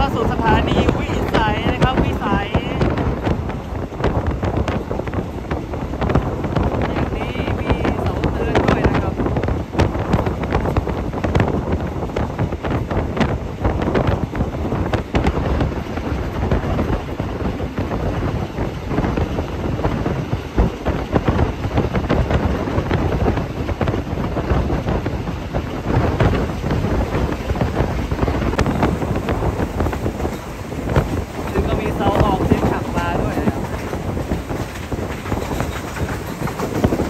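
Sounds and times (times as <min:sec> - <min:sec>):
train running rumble: 0:00.0 - 0:37.0
wind buffeting microphone: 0:00.0 - 0:37.0
knocks and rattles: 0:25.9 - 0:37.0.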